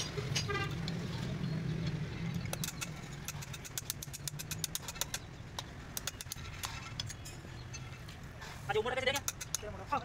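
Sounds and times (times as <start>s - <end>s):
sharp irregular clicks: 1.8s - 7.2s, 9.0s - 10.0s.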